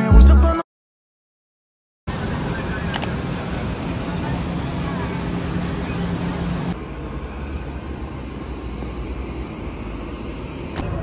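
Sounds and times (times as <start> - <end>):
vehicle rumble in motion: 2.1 - 11.0.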